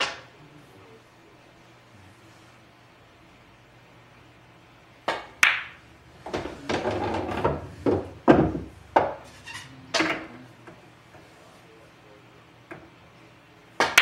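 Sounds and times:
pool balls clacking: 0.0 - 0.3, 5.0 - 11.4, 12.6 - 13.0, 13.7 - 14.0
balls rolling rumble: 5.7 - 11.4.

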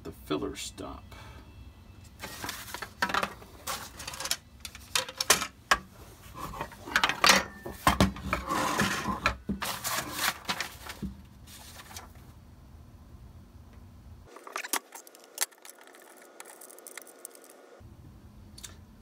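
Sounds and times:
tool parts clicking and scraping: 2.2 - 11.0.

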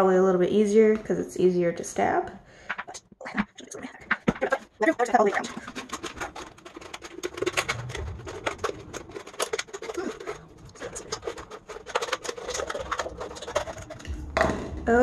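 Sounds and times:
scissors cutting plastic bottle: 2.8 - 7.8, 9.4 - 14.1.

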